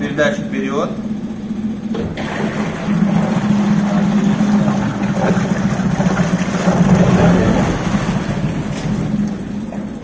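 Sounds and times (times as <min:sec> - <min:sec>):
outboard motor running: 0:00.0 - 0:10.0.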